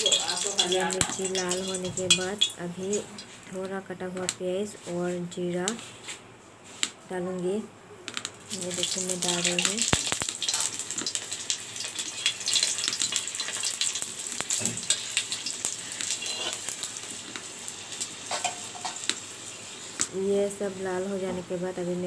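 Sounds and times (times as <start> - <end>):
metal spoon stirring: 0.0 - 3.4, 14.8 - 16.7
spices sizzling in hot oil: 0.0 - 3.4, 8.4 - 20.3.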